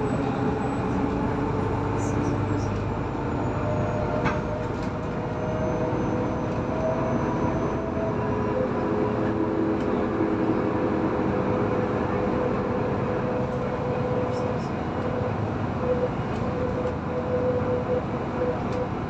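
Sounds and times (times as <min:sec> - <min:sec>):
bus engine and road rumble: 0:00.0 - 0:19.0.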